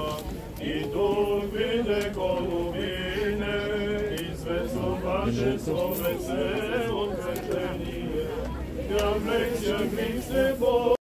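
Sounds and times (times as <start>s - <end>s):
man chanting a hymn: 0.8s - 8.4s.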